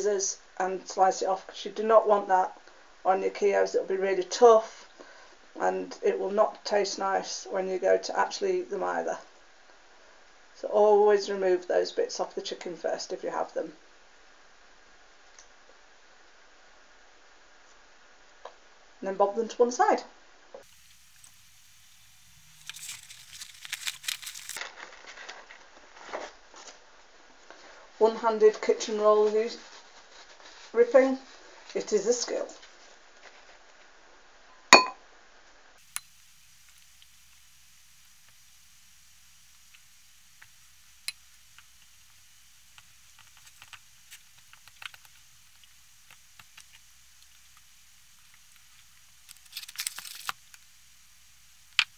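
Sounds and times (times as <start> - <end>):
steady low hiss: 0.0 - 51.9
paper towel crumpling and tearing: 22.4 - 26.8
paper rustling: 22.5 - 26.8.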